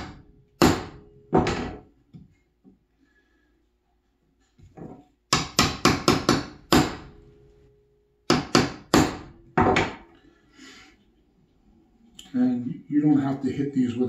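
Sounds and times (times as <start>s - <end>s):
hammer striking chisel handle: 5.3s - 7.2s, 8.3s - 10.0s.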